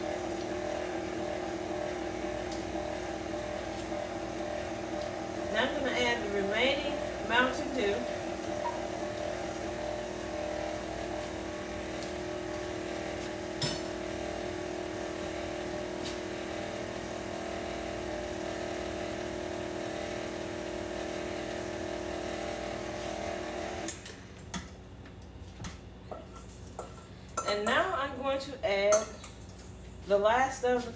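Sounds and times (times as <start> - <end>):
stand mixer motor hum: 0.0 - 24.0.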